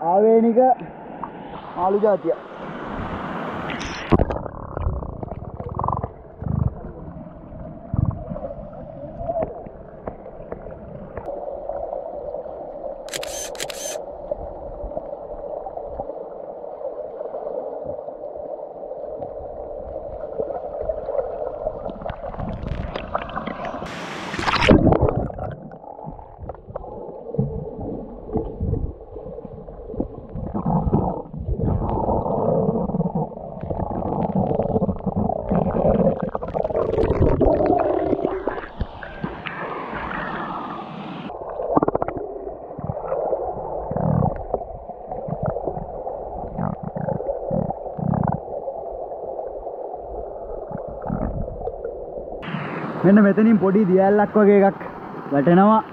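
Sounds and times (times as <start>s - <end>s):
muffled underwater gurgling: 3.7s - 10.2s, 19.4s - 40.7s, 41.3s - 52.7s.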